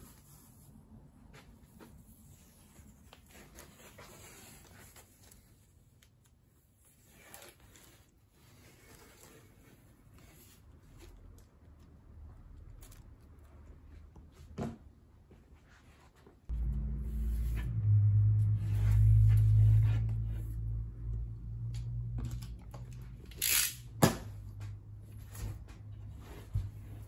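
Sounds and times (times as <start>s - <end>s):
low machine hum: 16.5s - 23.4s.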